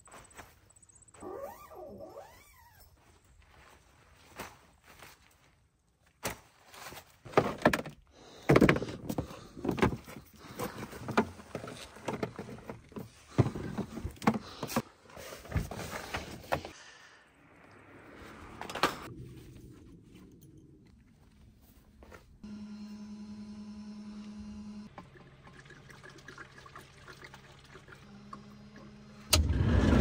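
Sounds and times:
knocks clunks and rustling: 7.3 - 16.7.

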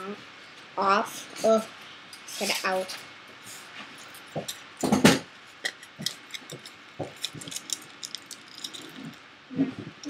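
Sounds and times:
foil crinkling: 6.1 - 9.0.

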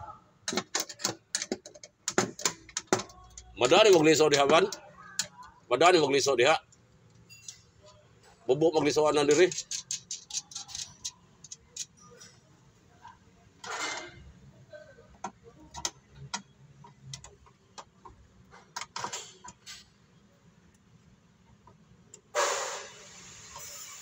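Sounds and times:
hand ratchet clicking: 9.5 - 11.9.

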